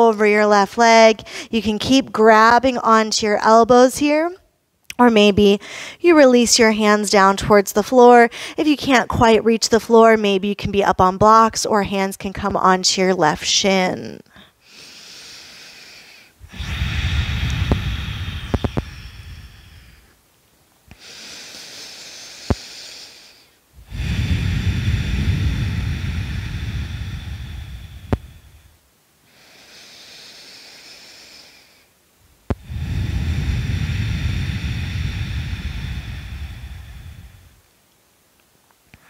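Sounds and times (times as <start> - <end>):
person breathing deeply: 1.2 - 1.5, 5.6 - 6.0, 8.3 - 8.6, 14.3 - 20.2, 20.9 - 37.7.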